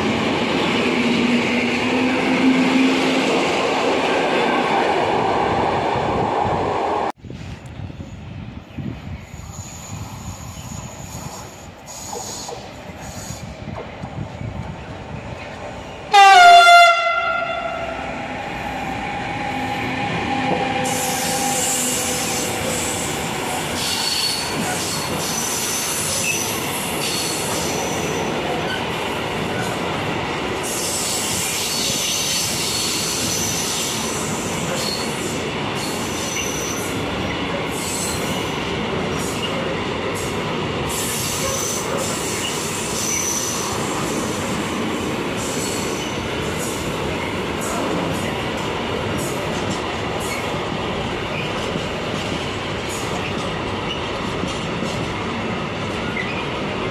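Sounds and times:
train wheels rumbling on rails: 0:00.0 - 0:56.9
locomotive horn blast: 0:16.1 - 0:22.4.

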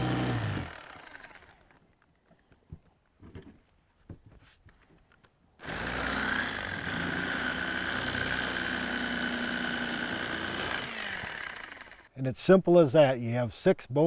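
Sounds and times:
electric knife motor whining: 0:00.0 - 0:01.8, 0:05.6 - 0:12.1.

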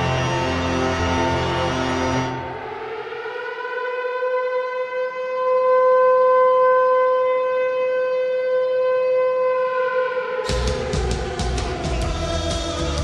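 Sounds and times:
goal horn blowing: 0:00.0 - 0:02.8.

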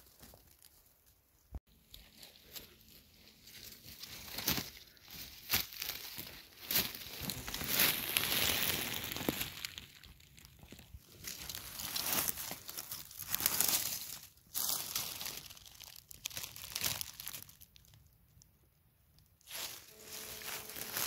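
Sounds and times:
leaves and grass rustling underfoot: 0:00.0 - 0:17.9, 0:19.4 - 0:21.0
hand parting grass: 0:19.5 - 0:21.0.

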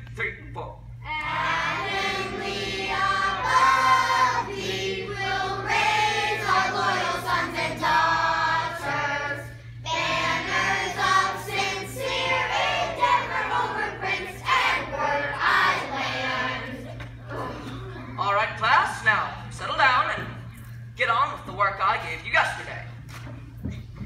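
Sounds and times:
children's choir singing: 0:01.1 - 0:17.0.

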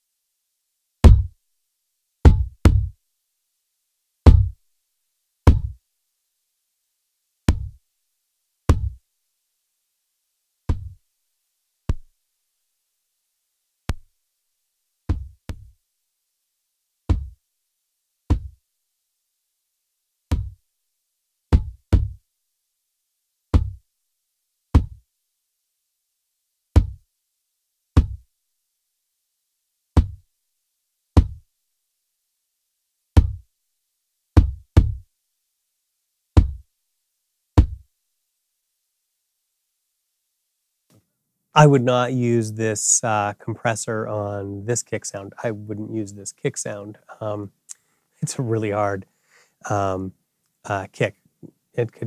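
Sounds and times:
kick drum hits: 0:01.0 - 0:01.4, 0:02.3 - 0:03.0, 0:04.3 - 0:04.6, 0:05.5 - 0:05.8, 0:07.5 - 0:07.8, 0:08.7 - 0:09.0, 0:10.7 - 0:11.0, 0:15.1 - 0:15.7, 0:17.1 - 0:17.4, 0:18.3 - 0:18.6, 0:20.3 - 0:20.6, 0:21.5 - 0:22.2, 0:23.5 - 0:23.8, 0:24.8 - 0:25.0, 0:26.8 - 0:27.0, 0:28.0 - 0:28.2, 0:30.0 - 0:30.2, 0:31.2 - 0:31.4, 0:33.2 - 0:33.4, 0:34.4 - 0:35.0, 0:36.4 - 0:36.6, 0:37.6 - 0:37.8.

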